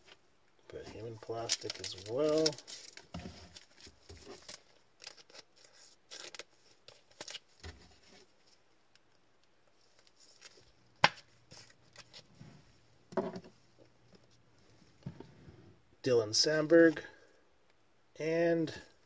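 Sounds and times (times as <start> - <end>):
cards and plastic holders handled: 0.8 - 12.3.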